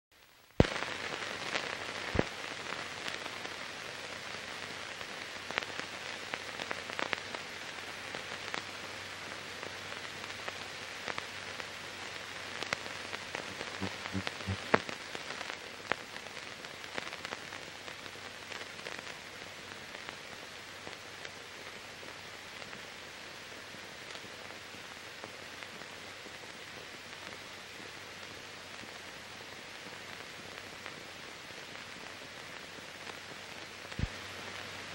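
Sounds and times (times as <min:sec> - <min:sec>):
film hiss: 0:00.1 - 0:34.9
film clicks and pops: 0:01.6 - 0:02.4.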